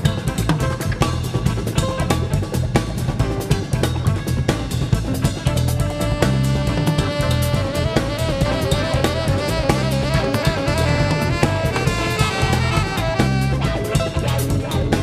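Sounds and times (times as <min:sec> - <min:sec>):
bass line: 0:00.0 - 0:15.0
drum kit beat: 0:00.0 - 0:15.0
electric guitar: 0:00.0 - 0:15.0
saxophone melody: 0:04.8 - 0:15.0.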